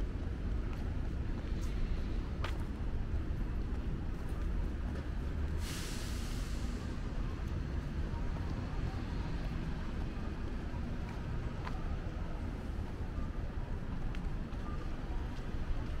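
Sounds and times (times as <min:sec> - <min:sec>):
street traffic rumble: 0:00.0 - 0:16.0
air brake hissing: 0:05.6 - 0:06.9.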